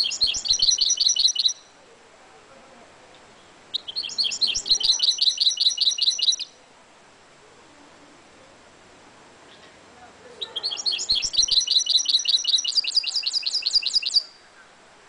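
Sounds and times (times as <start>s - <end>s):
bird singing rapid high notes: 0.0s - 1.8s, 3.7s - 6.6s, 10.4s - 14.4s.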